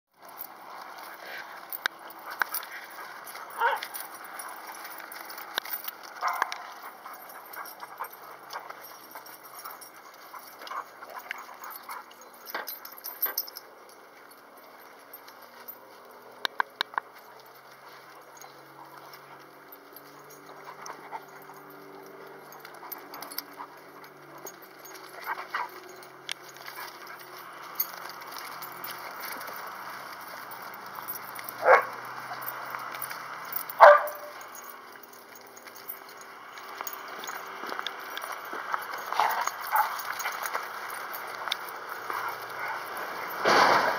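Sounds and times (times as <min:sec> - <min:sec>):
dog barking: 0:03.4 - 0:04.1, 0:06.2 - 0:08.2, 0:31.6 - 0:32.6, 0:33.8 - 0:34.4.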